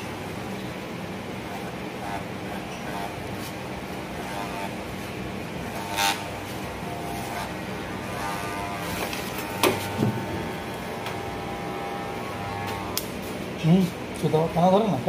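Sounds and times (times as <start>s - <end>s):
electric hair clippers buzzing: 1.4s - 13.4s.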